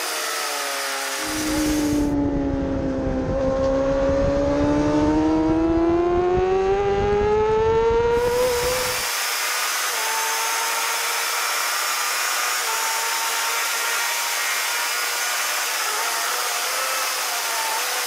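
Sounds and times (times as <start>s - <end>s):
faint motorcycle engine: 1.2s - 9.0s
rushing wind noise: 1.2s - 9.1s.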